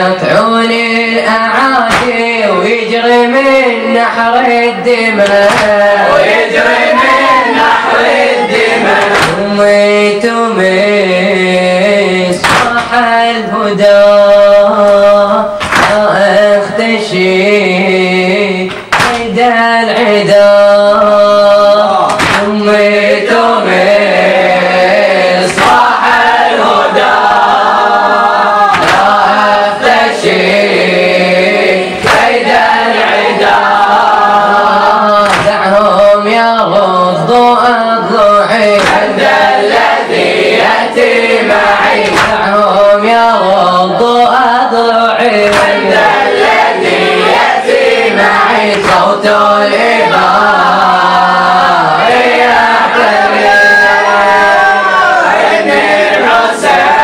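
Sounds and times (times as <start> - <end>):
boys chanting: 0.0 - 57.0
chest-beating thumps: 1.8 - 2.3, 12.3 - 13.0, 22.1 - 22.6.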